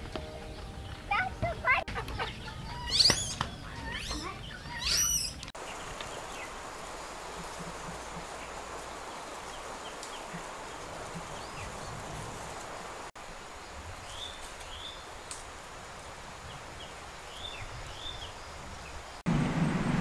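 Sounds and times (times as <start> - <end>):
small birds chirping: 0.1 - 15.4, 16.4 - 19.2
steady background hiss: 5.6 - 20.0.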